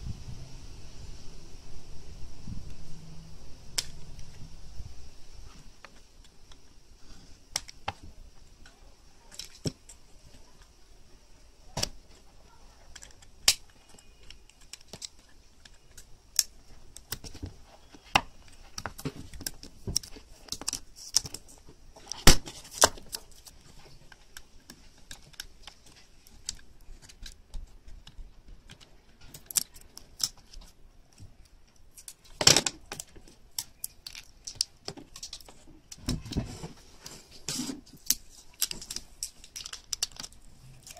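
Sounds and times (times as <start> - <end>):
sharp clicks and snaps: 3.7 - 4.4, 12.9 - 17.4, 18.1 - 36.1, 38.0 - 40.9
battery foil crinkling and tearing: 11.8 - 27.8, 28.7 - 30.8, 31.4 - 36.4, 37.2 - 40.9.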